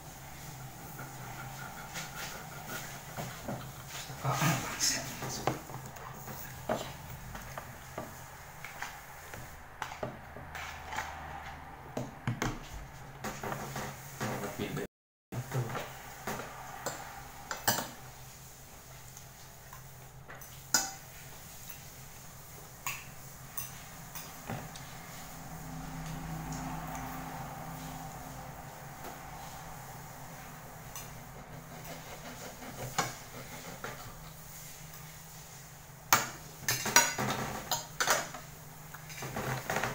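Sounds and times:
steady low hum: 21.1 - 36.1
dishes and cutlery clinking: 22.8 - 24.9, 36.1 - 39.9
kitchenware clattering: 36.1 - 39.9.

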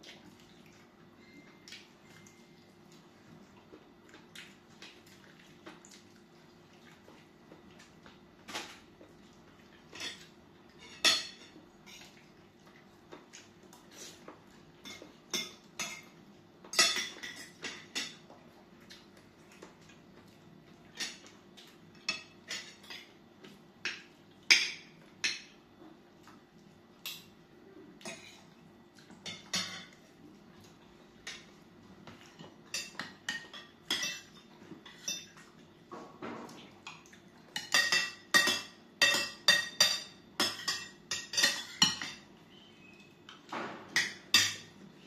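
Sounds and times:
faint steady hum: 0.0 - 45.0
cutlery clinking on plates: 9.9 - 12.2, 14.1 - 18.3, 20.9 - 25.6, 29.1 - 42.3, 43.3 - 44.8.

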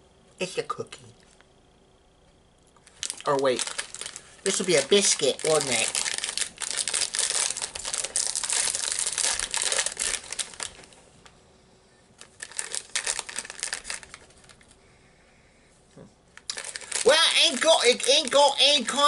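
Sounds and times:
biscuit wrapper crinkling: 2.8 - 11.0, 12.2 - 14.8, 16.3 - 19.0.

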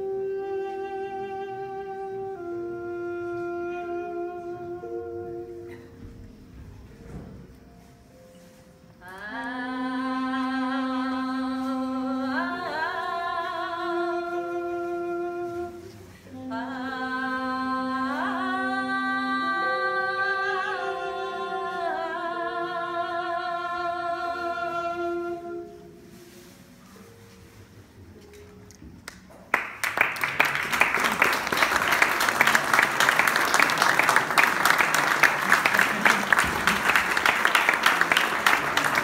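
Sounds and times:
woman singing: 9.0 - 25.9.

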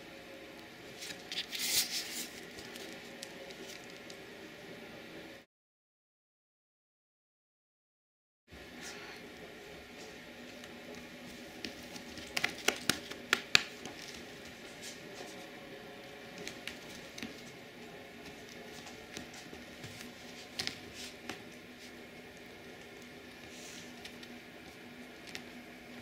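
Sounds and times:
hand patting cat fur: 11.6 - 14.1.

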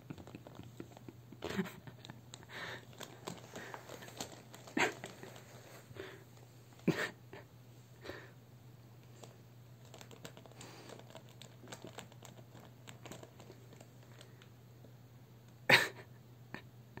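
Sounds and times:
plastic bag crinkling: 1.9 - 6.8, 9.2 - 14.4.

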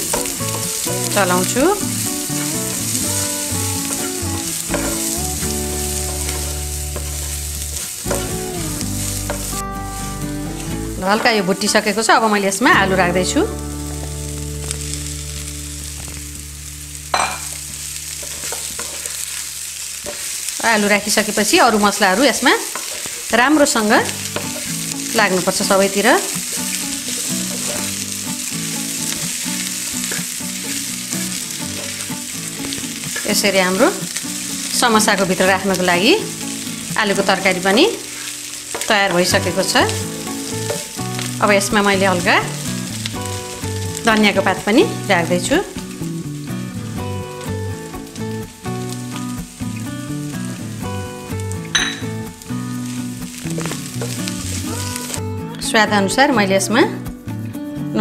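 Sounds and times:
vegetables sizzling in oil: 0.0 - 57.1
wooden spatula scraping a pan: 18.2 - 19.4, 22.6 - 23.4, 25.7 - 28.1, 31.4 - 33.8
wooden spatula stirring: 18.2 - 19.4, 22.6 - 23.4, 24.2 - 28.1, 31.4 - 36.0, 36.8 - 39.8.

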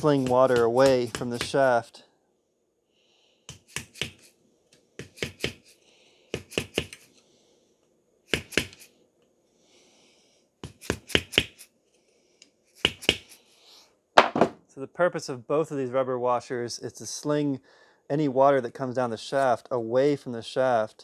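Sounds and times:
hand tool tapping: 0.0 - 1.7, 3.5 - 5.6, 12.8 - 13.3.

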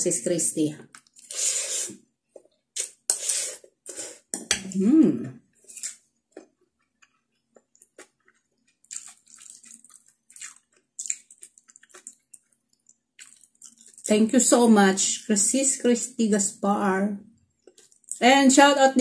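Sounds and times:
person slurping noodles: 1.2 - 2.0, 2.8 - 5.1
person humming: 4.7 - 5.4
wet chewing and mouth clicks: 5.7 - 14.1, 17.6 - 18.2.

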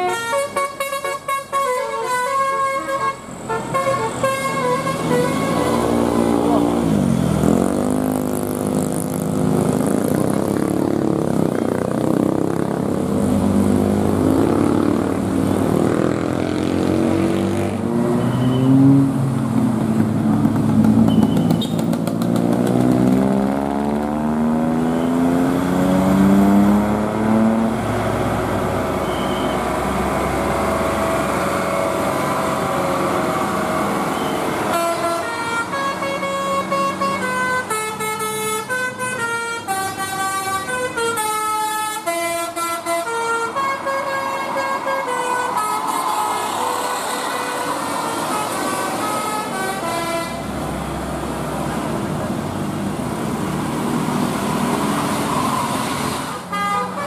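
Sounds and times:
bus horn playing a tune: 0.0 - 6.5, 30.8 - 46.0, 46.8 - 50.6, 56.3 - 57.0
bus engines revving: 0.0 - 57.0
motorcycles: 4.6 - 35.4.

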